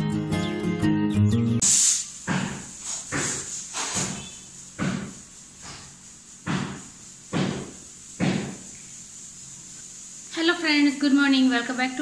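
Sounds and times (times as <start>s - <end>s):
bare footsteps on tiled floor: 2.2s - 8.7s.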